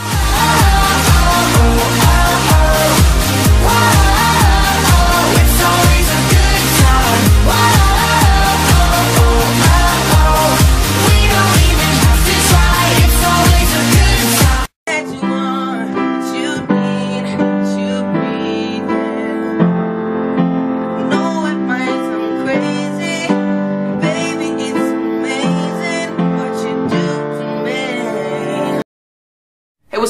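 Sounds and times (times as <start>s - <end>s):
loud pop music: 0.0s - 19.4s
piano chords and melody: 0.0s - 28.8s.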